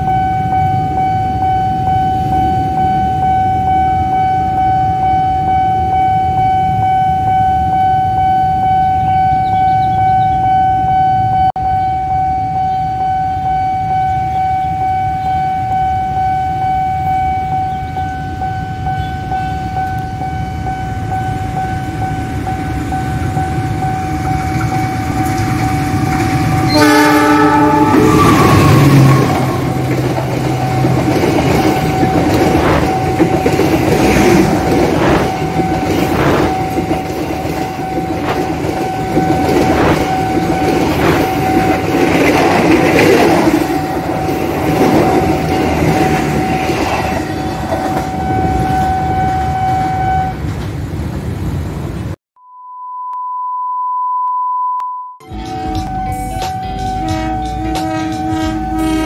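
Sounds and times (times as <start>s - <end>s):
pure beep tone: 0.0s - 25.4s, 27.9s - 41.9s, 52.4s - 59.0s
level crossing alarm tone: 0.0s - 50.5s, 53.0s - 59.0s
train wheels clacking on rail joints: 27.9s - 48.2s.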